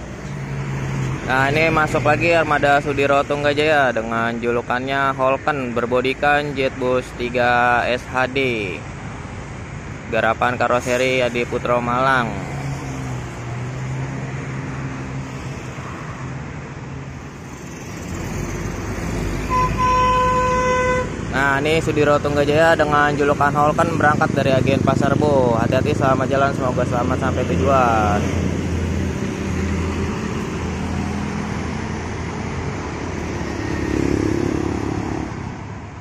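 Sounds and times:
passing road traffic: 0.0 - 36.0
bus diesel engine pulling away: 17.2 - 19.9.

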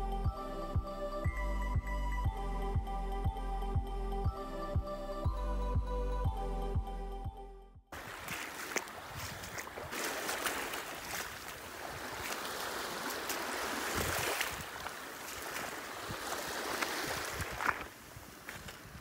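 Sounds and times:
wind: 0.0 - 19.0
rushing water: 7.9 - 19.0.

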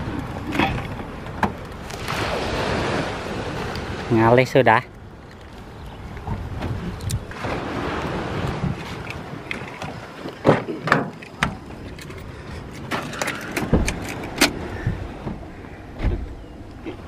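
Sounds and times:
car door shutting thud: 16.0 - 16.3.

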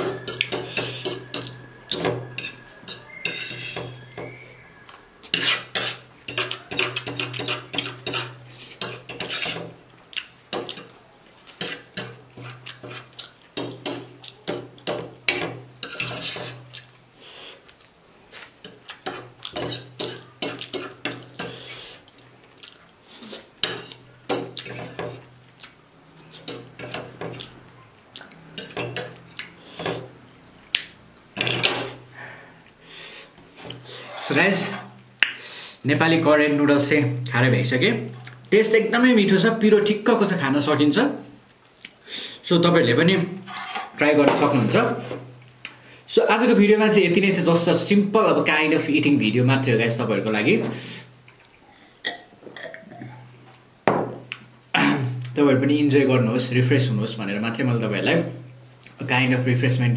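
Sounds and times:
cutlery scraping ceramic plate: 0.0 - 4.4, 5.2 - 9.8, 11.5 - 16.8, 18.6 - 21.6, 23.3 - 25.2, 31.4 - 32.0, 43.4 - 45.3.

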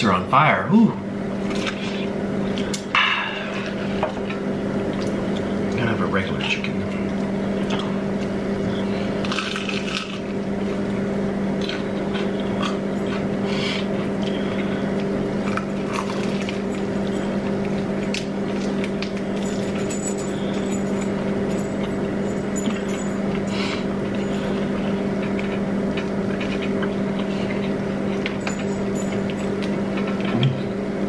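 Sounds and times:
steady low hum: 0.0 - 31.0
chewing crunchy fried chicken: 6.4 - 19.8, 20.4 - 30.8.

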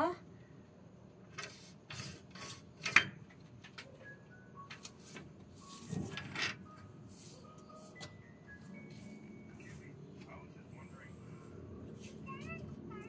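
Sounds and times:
curtain fabric rustling: 4.9 - 6.4.

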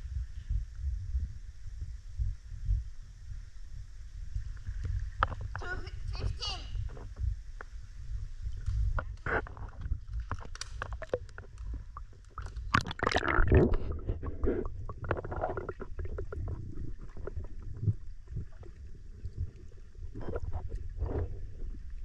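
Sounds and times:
muffled underwater rumble: 0.0 - 22.0
water sloshing: 8.4 - 22.0.

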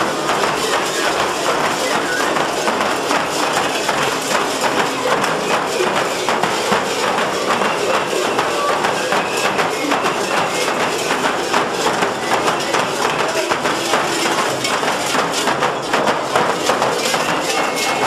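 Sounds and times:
crowd voices: 0.0 - 18.0
frame drums beaten fast: 0.0 - 18.0.

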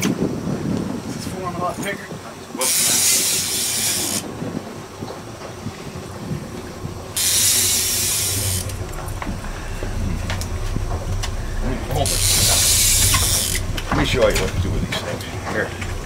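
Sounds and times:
fishing reel drag buzzing: 2.6 - 4.3, 7.2 - 9.8, 12.0 - 13.9.

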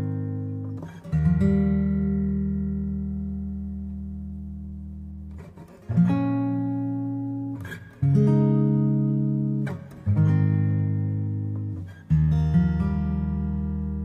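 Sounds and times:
acoustic guitar chords: 0.0 - 14.0.

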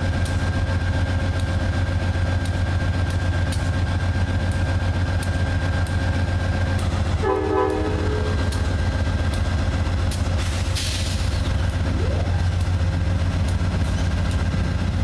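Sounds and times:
diesel locomotive idling: 0.0 - 15.0
train horn note: 7.2 - 8.6.

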